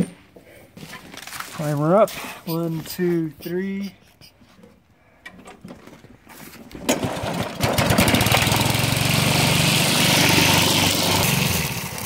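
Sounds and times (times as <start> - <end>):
string trimmer engine starting: 6.8 - 12.0.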